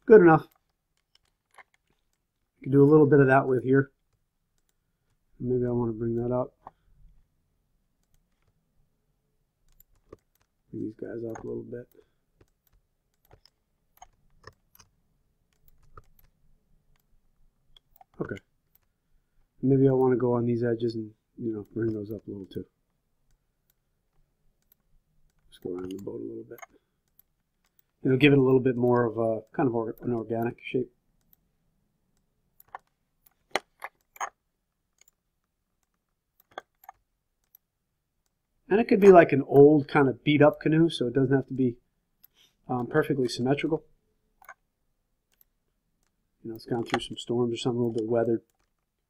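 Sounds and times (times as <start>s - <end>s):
computer mouse clicks: 0.5s - 2.3s, 4.0s - 5.2s, 8.0s - 8.6s, 9.6s - 10.6s, 11.2s - 17.1s, 23.3s - 29.1s, 32.2s - 38.4s, 44.4s - 44.7s, 45.3s - 47.2s
mouse and keyboard clicks: 11.3s - 16.4s, 24.6s - 28.0s, 35.9s - 37.6s.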